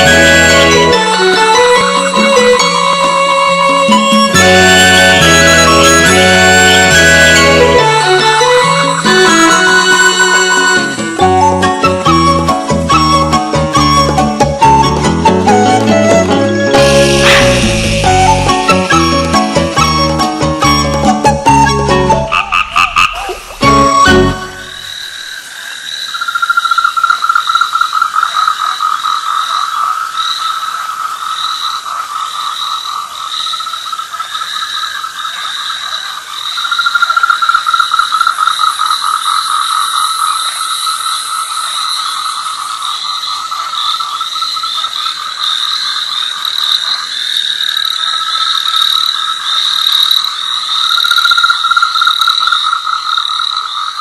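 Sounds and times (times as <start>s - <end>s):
frogs trilling: 21.6s - 54.0s.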